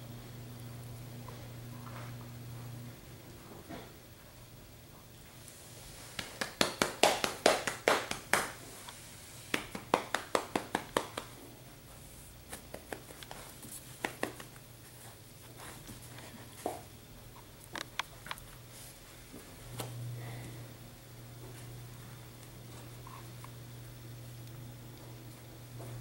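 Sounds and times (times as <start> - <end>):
puppy claws clicking on floor: 12.5 - 14.6.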